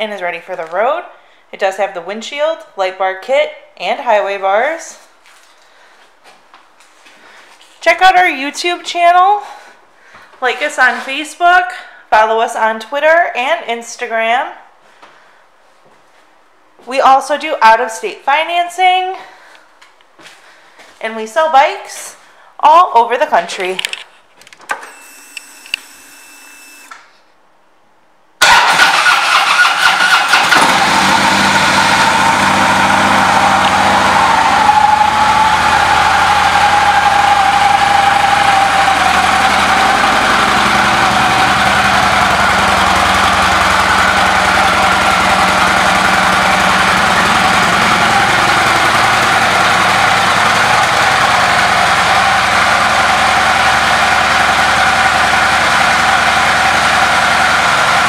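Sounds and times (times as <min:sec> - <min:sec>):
motorcycle engine starting and idling: 0:28.4 - 0:58.0.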